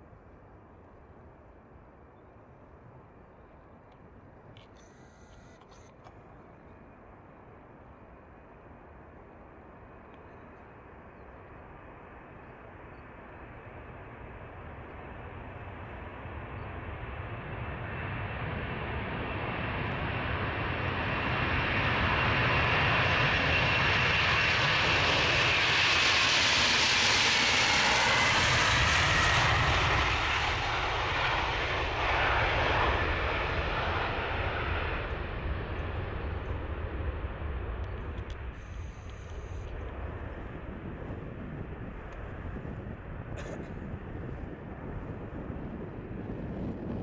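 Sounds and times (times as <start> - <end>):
jet engines at takeoff: 6.8 - 47.0.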